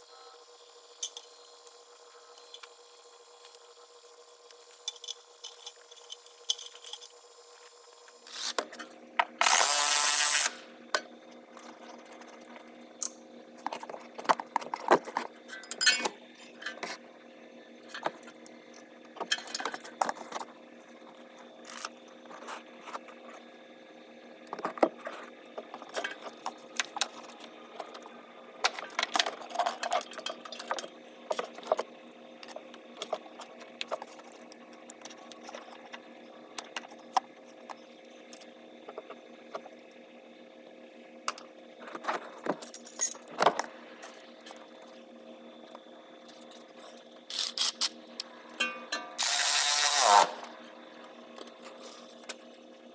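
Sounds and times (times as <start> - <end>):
steady low hum: 0.0 - 52.9
cordless ratchet whirring: 9.4 - 10.7, 49.2 - 50.5.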